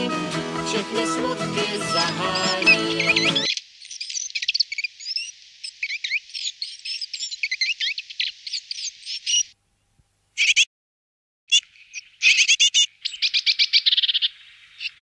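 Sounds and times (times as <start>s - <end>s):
songbird chirping: 0.7s - 9.6s, 11.5s - 15.0s.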